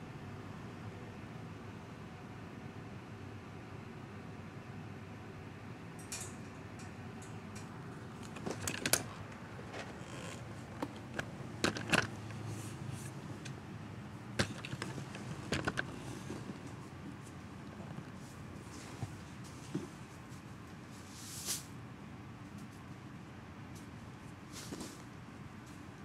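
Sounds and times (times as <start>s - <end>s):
faint background hum: 0.0s - 26.0s.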